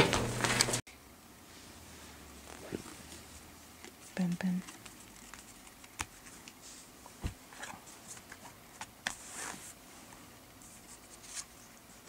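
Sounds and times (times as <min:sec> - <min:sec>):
cards tapping and rustling: 0:03.8 - 0:06.6.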